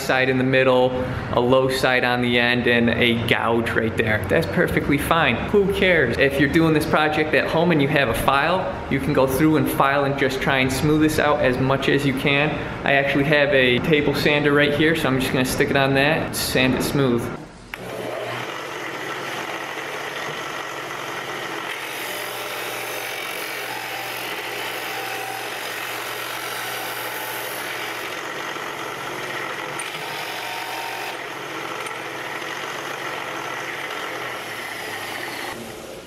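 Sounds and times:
sander motor humming: 17.7 - 36.0.

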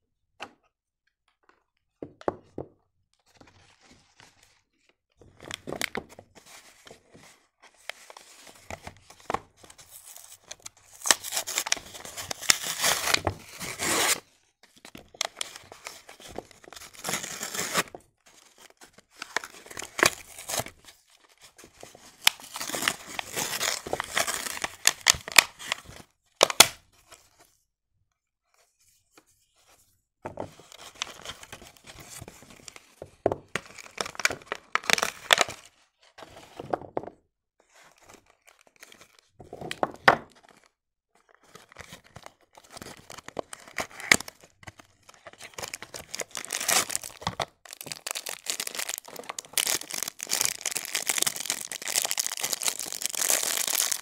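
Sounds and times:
cardboard and paper ripping: 11.0 - 14.2, 16.8 - 17.9, 45.4 - 54.0.

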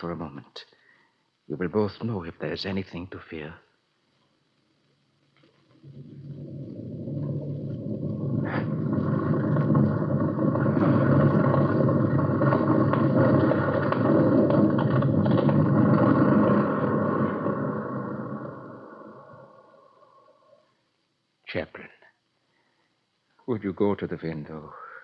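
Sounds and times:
sharp crack: 5.7 - 20.3
avalanche rushing rumble: 5.8 - 20.4.

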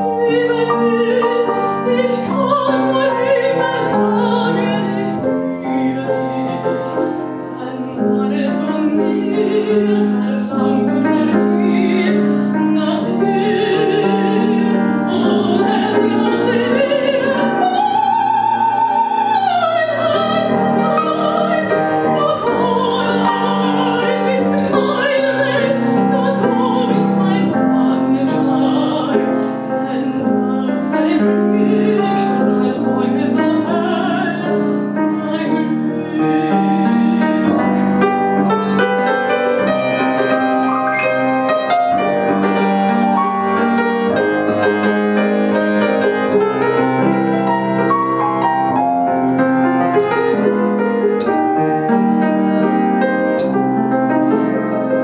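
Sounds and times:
woman singing with vibrato: 0.0 - 51.6
piano accompaniment: 0.0 - 55.0.

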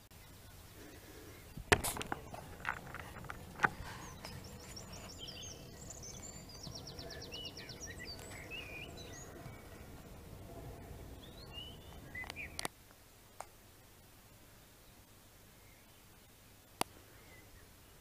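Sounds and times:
songbirds singing and chirping: 0.0 - 12.7, 15.6 - 18.0
outdoor background noise: 0.0 - 18.0
bird trill: 2.1 - 12.7.

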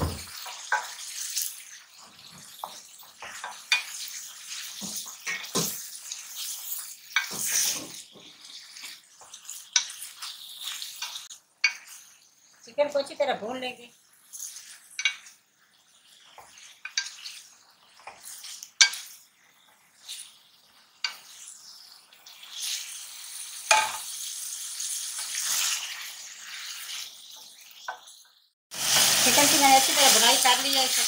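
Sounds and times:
spatula knocking on pan: 0.0 - 0.9
chicken frying in oil: 0.0 - 31.0
wooden spatula scraping pan: 7.2 - 11.2.

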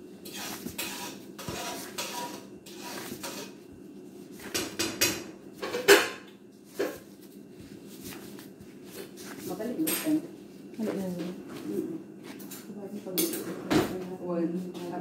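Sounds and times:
dough kneaded by gloved hands: 0.0 - 4.8, 6.4 - 12.4.

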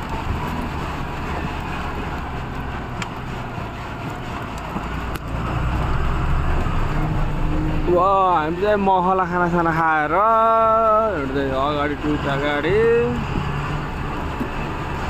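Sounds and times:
truck engine humming: 0.0 - 15.0.

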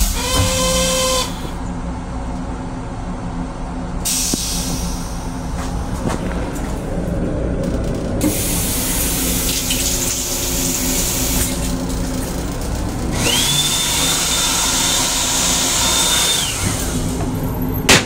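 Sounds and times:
hand dryer whine: 0.0 - 1.6, 13.0 - 17.6
railcar rumble: 0.0 - 13.5, 16.6 - 17.9
faucet running into sink: 9.0 - 12.0.

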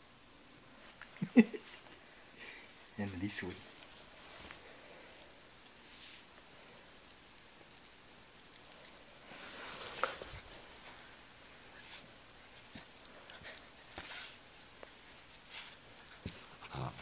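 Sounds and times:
rustle: 5.7 - 17.0
dog growling quietly: 16.5 - 17.0.

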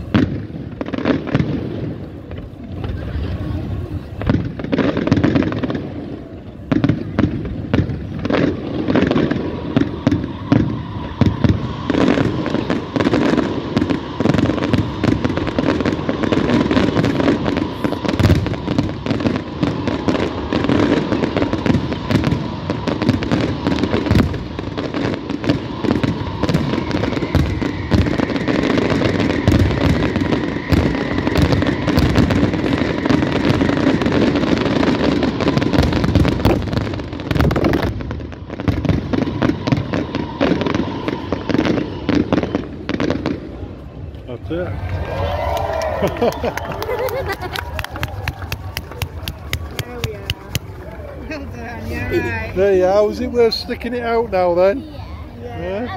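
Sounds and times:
fireworks bursting: 0.0 - 55.9.

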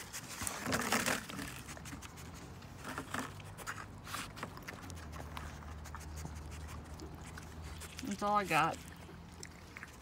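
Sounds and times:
plastic box scraping and rattling: 0.0 - 2.0.

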